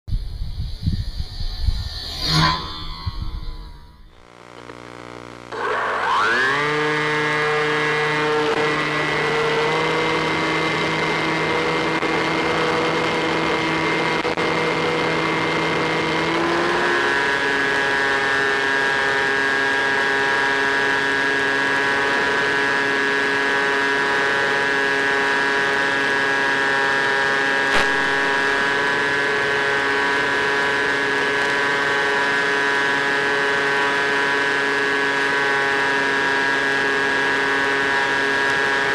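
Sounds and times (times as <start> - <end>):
wind rushing: 0.1 - 4.2
electric motor whining: 0.1 - 38.9.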